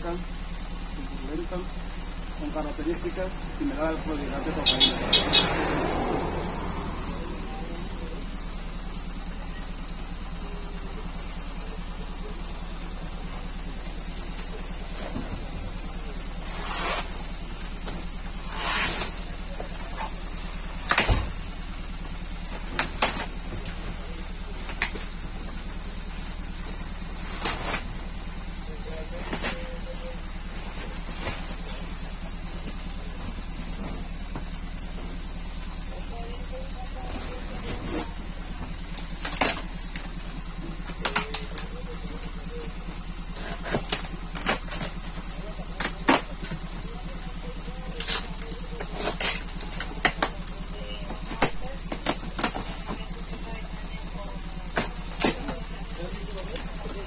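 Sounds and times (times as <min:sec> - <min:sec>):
steady background hum: 0:00.0 - 0:57.0
tool scratching cardboard box: 0:16.4 - 0:17.3, 0:43.4 - 0:45.2, 0:47.9 - 0:50.4.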